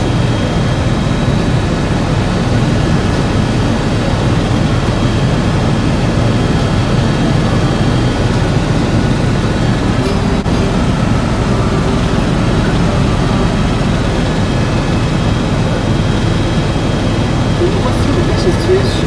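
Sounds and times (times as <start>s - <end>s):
helicopter cabin noise: 0.0s - 19.0s
faint high-pitched tones: 9.4s - 19.0s.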